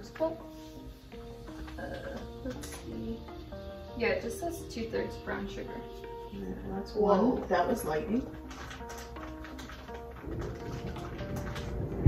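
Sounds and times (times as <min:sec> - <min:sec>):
background music: 0:00.0 - 0:12.0
thunder rumbling: 0:10.2 - 0:12.0.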